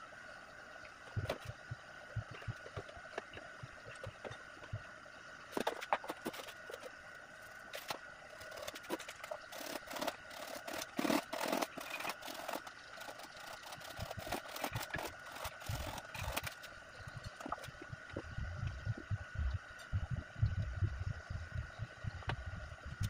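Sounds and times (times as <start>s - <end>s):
hand saw cutting pipe: 8.5s - 16.6s.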